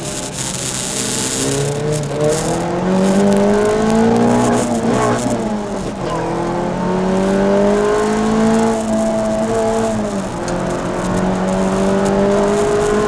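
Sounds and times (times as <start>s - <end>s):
car engine accelerating: 0.0s - 13.0s.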